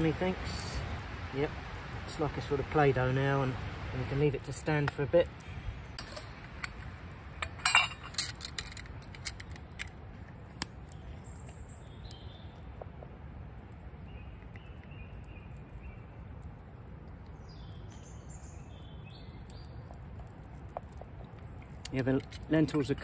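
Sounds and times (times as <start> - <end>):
low wind rumble: 0.0 - 23.0
cooking pot lid clinking: 7.5 - 8.4.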